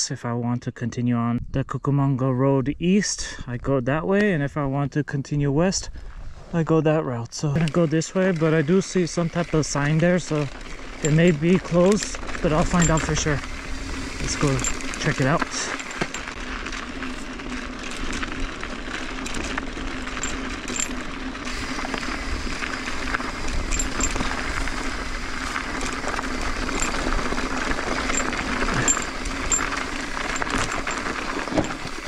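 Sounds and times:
bike tyres rushing over gravel: 7.4s - 32.0s
bike metallic rattles: 7.5s - 32.0s.

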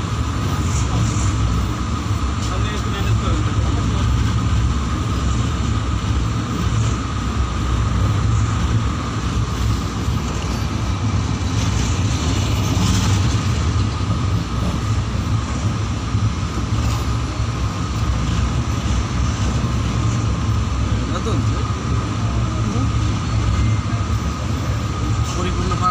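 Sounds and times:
rushing air: 0.0s - 25.3s
thin steady whine: 0.0s - 25.9s
train wheels rumbling on rails: 0.0s - 25.9s.

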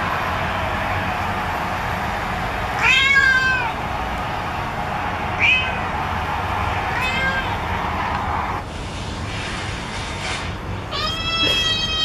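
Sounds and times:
cat meowing through phone speaker: 2.8s - 3.8s, 5.4s - 5.8s, 6.9s - 7.6s, 10.9s - 12.0s.

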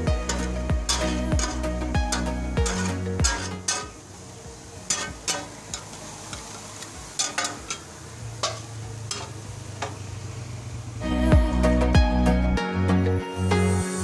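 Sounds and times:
metal spatulas scraping griddle: 0.0s - 4.2s, 4.8s - 10.3s
frying sizzle: 0.0s - 12.4s.

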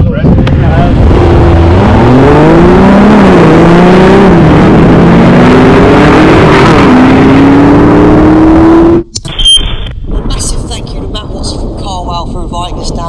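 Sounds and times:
engines accelerating through gears: 0.4s - 9.1s.

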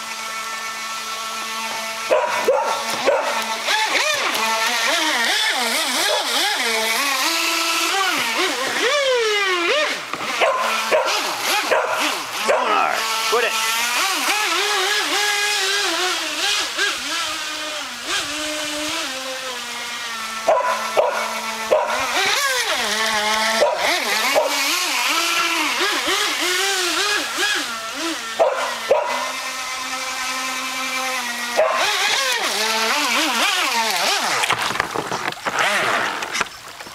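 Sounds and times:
model boat motor whining: 0.0s - 36.9s
shallow stream rushing: 0.0s - 36.9s.

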